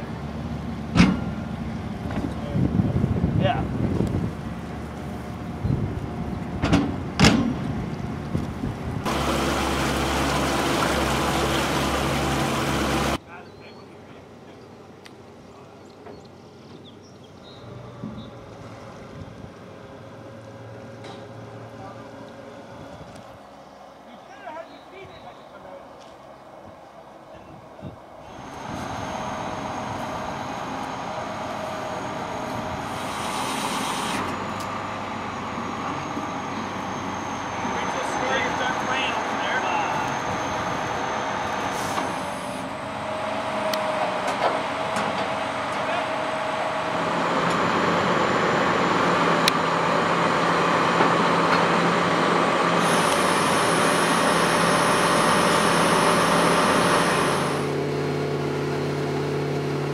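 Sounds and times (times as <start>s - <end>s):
heavy machinery running: 0.0s - 13.2s, 28.2s - 59.9s
engine hum: 0.0s - 59.9s
wind rumbling on microphone: 1.8s - 9.3s, 22.6s - 23.5s, 26.6s - 30.4s
thin high whine: 35.2s - 44.0s.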